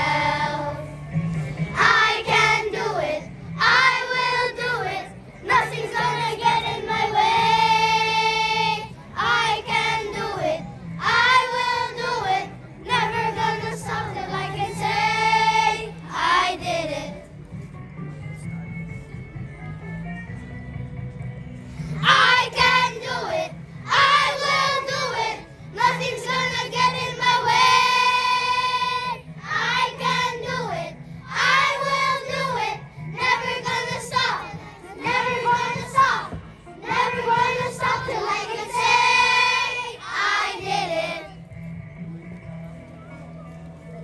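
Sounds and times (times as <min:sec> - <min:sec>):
children singing in unison: 0:00.0 - 0:00.8, 0:36.9 - 0:41.2.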